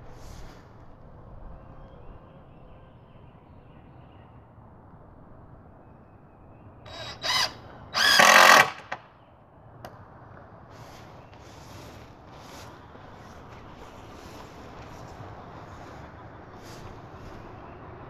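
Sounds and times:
cordless drill motor whining: 6.9s - 9.0s.

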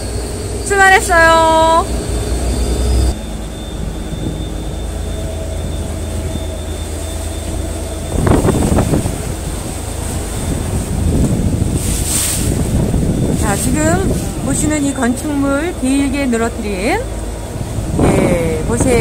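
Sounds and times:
boat engine rumbling: 0.0s - 19.0s.

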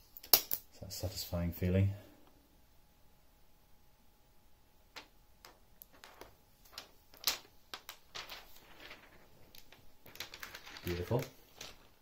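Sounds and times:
plastic film peeling crackles: 5.8s - 12.0s.

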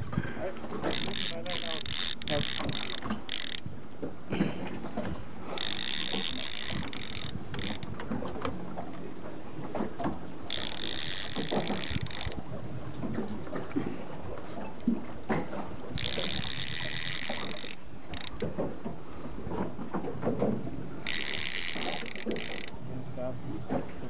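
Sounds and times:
fishing reel ratchet clicking: 0.8s - 3.7s, 5.5s - 8.4s, 10.5s - 12.4s, 15.9s - 18.5s, 21.0s - 22.8s.

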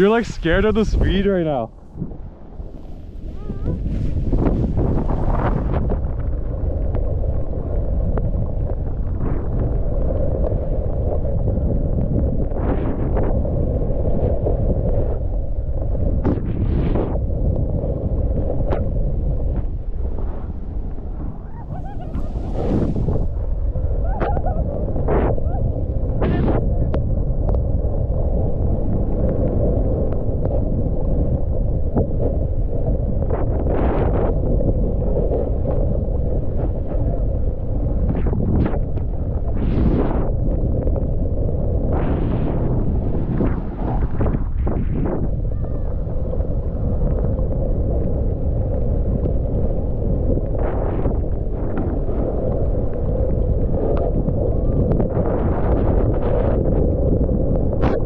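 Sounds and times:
skis sliding over snow: 0.0s - 1.7s, 2.6s - 6.2s, 21.3s - 23.4s
wind buffeting microphone: 0.0s - 58.0s.

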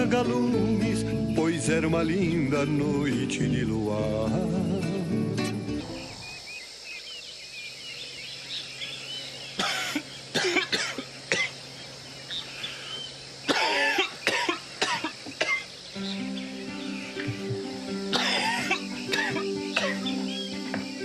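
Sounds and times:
birds chirping faintly: 0.0s - 21.0s
man coughing harshly: 9.6s - 11.5s, 13.5s - 15.7s, 18.1s - 20.1s.

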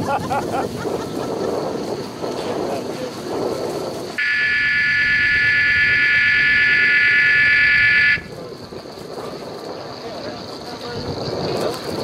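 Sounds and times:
loud shrill alarm tone: 4.2s - 8.4s.

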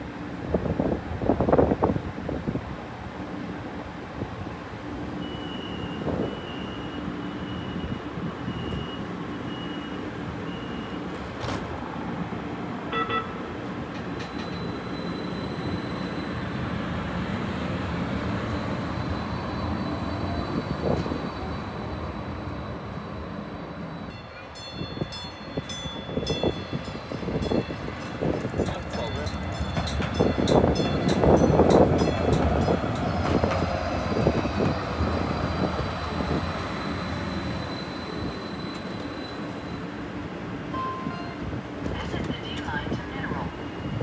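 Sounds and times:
train humming: 11.0s - 44.0s.

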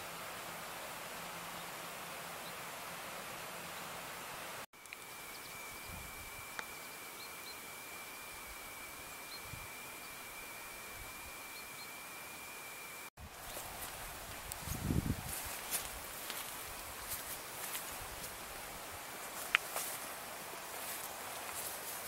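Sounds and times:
steady hiss: 0.0s - 22.0s
small birds chirping: 4.8s - 10.4s.

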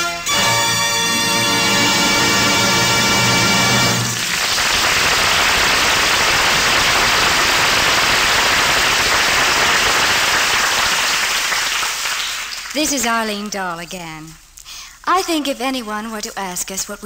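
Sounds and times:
music: 0.0s - 4.4s
audience applause: 1.1s - 12.8s.

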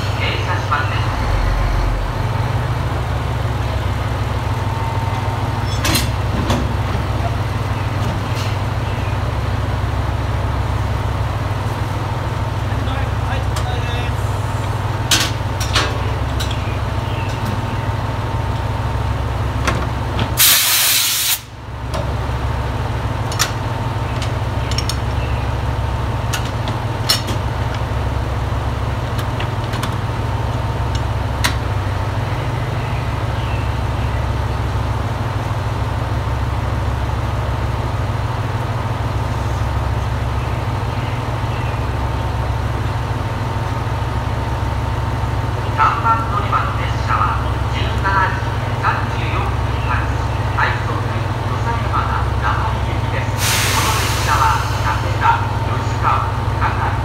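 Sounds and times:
diesel railcars idling: 0.0s - 57.0s
compressed air hissing: 20.4s - 21.5s, 53.4s - 54.9s.

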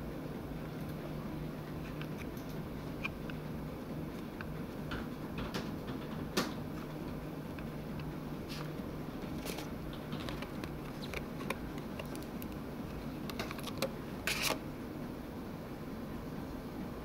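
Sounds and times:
steady low hum: 0.0s - 17.0s
plastic packaging crinkling: 8.5s - 14.6s.

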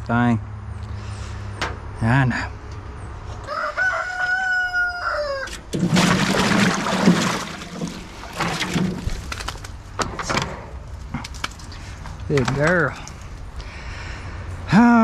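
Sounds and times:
rooster crowing: 3.4s - 5.6s
water splashing in metal washtub: 5.6s - 9.4s.

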